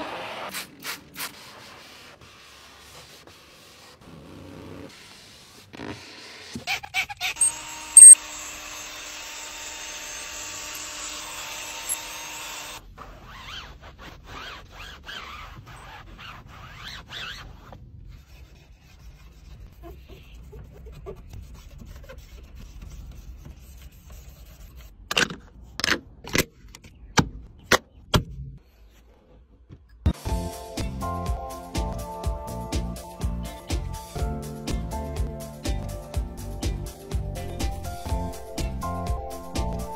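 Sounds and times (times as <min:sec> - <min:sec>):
drill brush whirring on carpet: 0:07.4 - 0:12.8
hand rubbing a touchscreen: 0:08.0 - 0:08.2.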